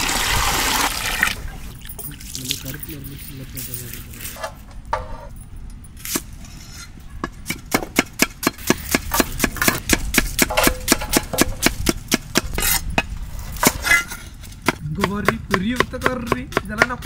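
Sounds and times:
knife chopping onion on wood: 7.3s - 13.0s, 14.6s - 17.0s.

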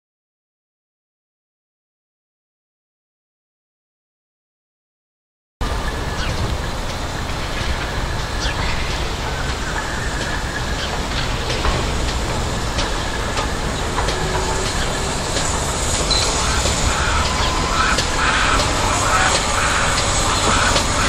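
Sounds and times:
steam locomotive rumble: 5.6s - 21.0s
birds calling: 5.7s - 21.0s
locomotive clanks and knocks: 5.7s - 21.0s.

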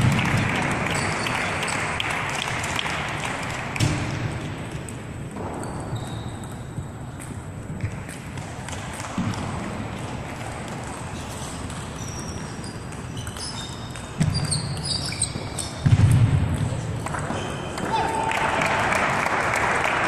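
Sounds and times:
murmur of large hall: 0.0s - 20.0s
short high squeaks: 12.0s - 15.8s.

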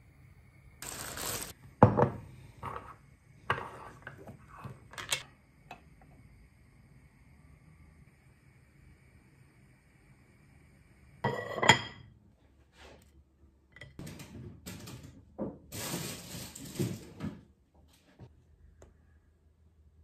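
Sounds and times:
dishes clinking: 11.3s - 12.1s
rustling and scraping: 15.7s - 18.3s.

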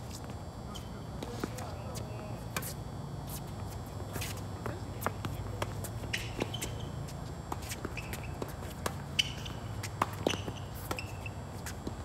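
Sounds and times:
tennis ball bouncing: 3.6s - 12.0s
racket hitting tennis ball: 7.5s - 12.0s.

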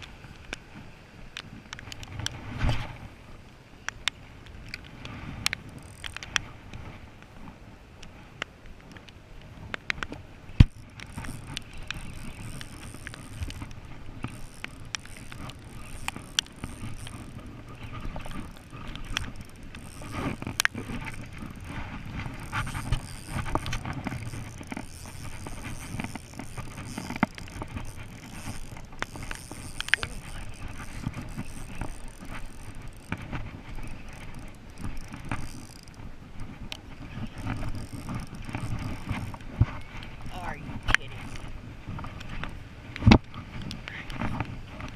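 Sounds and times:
fishing reel gears whirring: 4.6s - 6.5s, 10.6s - 44.9s
wind buffeting microphone: 9.4s - 44.9s.

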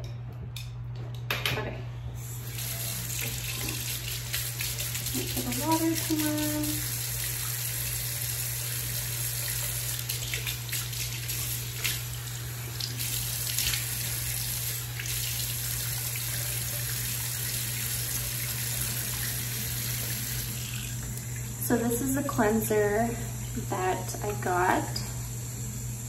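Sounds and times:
tap water pouring into sink: 2.5s - 21.6s.

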